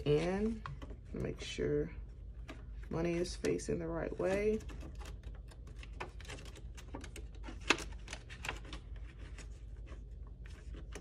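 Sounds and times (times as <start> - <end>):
banknotes rustling: 3.1 - 11.0.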